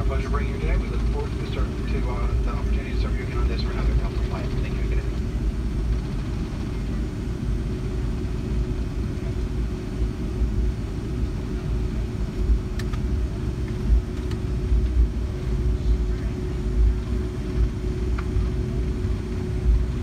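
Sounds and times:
jet engines idling rumble: 0:00.0 - 0:20.0
steady hum: 0:00.0 - 0:20.0.

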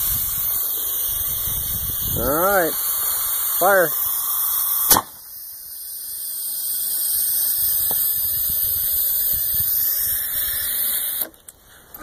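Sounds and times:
wind buffeting microphone: 0:00.0 - 0:03.8
steady high hiss: 0:00.0 - 0:12.0.

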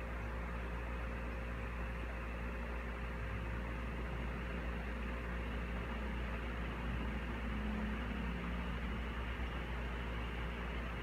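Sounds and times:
low steady hum: 0:00.0 - 0:11.0
ceiling fan whooshing: 0:03.1 - 0:11.0.

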